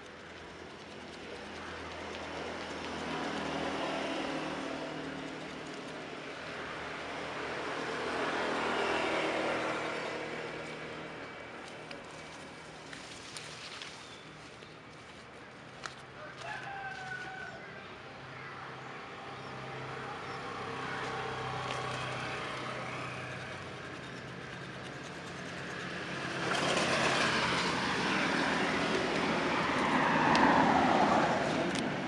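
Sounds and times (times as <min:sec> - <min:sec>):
motor vehicle passing: 0:00.0 - 0:32.0
rooster crowing: 0:16.2 - 0:17.8.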